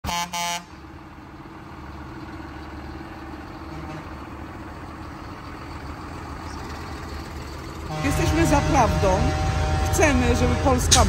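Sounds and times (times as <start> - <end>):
loud horn blasts: 0.0 - 0.8, 3.7 - 4.2, 7.8 - 11.0
tractor diesel engines idling: 0.0 - 11.0.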